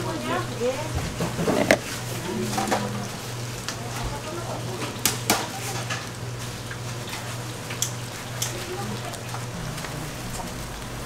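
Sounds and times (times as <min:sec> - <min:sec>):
kitchenware clicks and clinks: 0:01.2 - 0:02.9, 0:07.2 - 0:08.8
steady low hum: 0:06.2 - 0:11.0.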